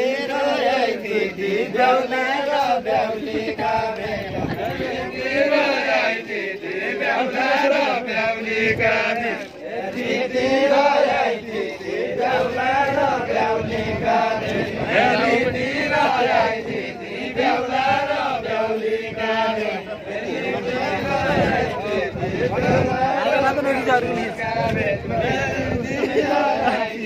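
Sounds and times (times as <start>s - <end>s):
group of men singing: 0.0s - 27.0s.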